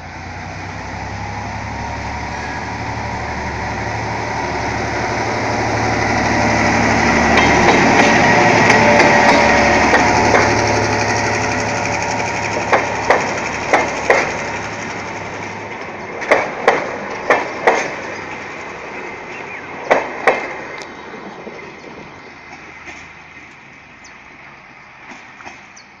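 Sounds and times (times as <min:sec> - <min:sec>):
diesel locomotive engine: 0:00.0 - 0:26.0
train wheels clacking over rail joint: 0:06.4 - 0:19.0, 0:19.8 - 0:20.9, 0:22.5 - 0:23.7, 0:25.0 - 0:25.9.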